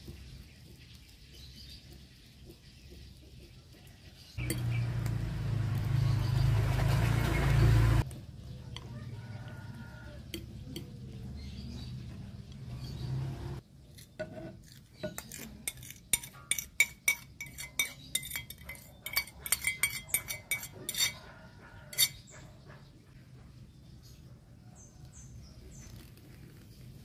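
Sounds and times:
utensils clinking glass bowl: 0:04.4 - 0:04.8, 0:14.2 - 0:21.3, 0:21.9 - 0:22.2
spatula folding batter: 0:13.8 - 0:21.2.

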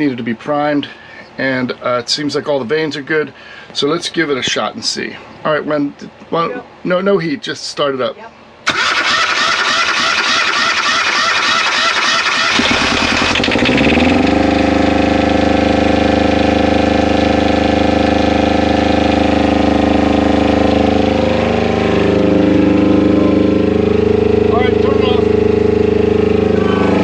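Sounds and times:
diesel generator running: 0:08.5 - 0:27.0
starter motor cranking: 0:08.7 - 0:14.2.

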